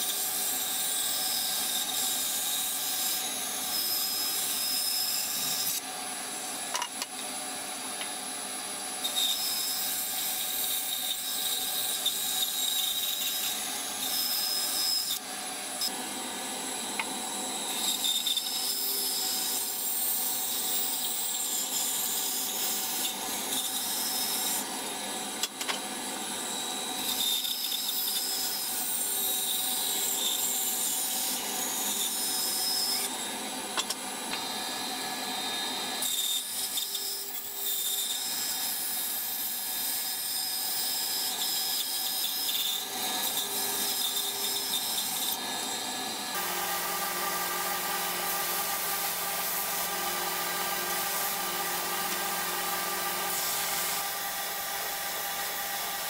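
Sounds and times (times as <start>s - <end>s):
bandsaw blade cutting wood: 0.0s - 5.9s, 8.9s - 16.2s, 16.8s - 24.7s, 35.9s - 56.0s
bandsaw running: 41.9s - 56.0s.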